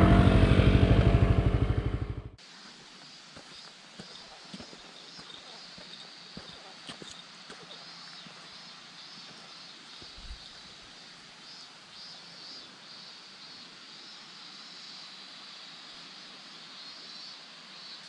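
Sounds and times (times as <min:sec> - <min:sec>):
high-pitched drone: 0:00.0 - 0:02.4
low thump: 0:00.0 - 0:02.4
even outdoor hiss: 0:00.0 - 0:18.0.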